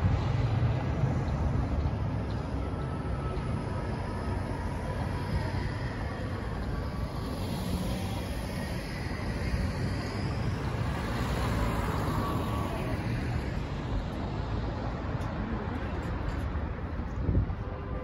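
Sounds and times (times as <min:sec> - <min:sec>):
steady traffic rumble: 0:00.0 - 0:18.0
cars driving past: 0:06.3 - 0:16.7.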